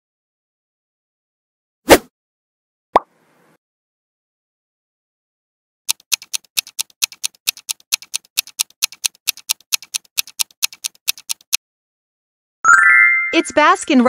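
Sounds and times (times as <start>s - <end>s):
clock ticking: 5.9s - 11.6s.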